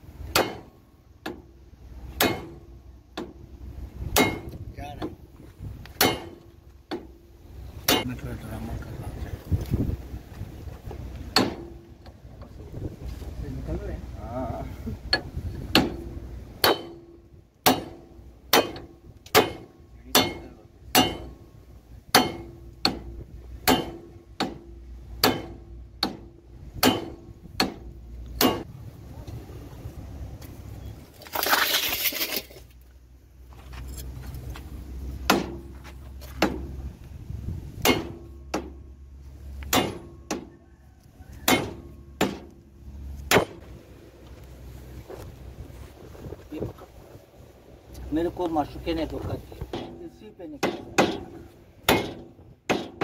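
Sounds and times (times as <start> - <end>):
hammer striking steel tool: 17.7 - 21.4, 41.5 - 42.5.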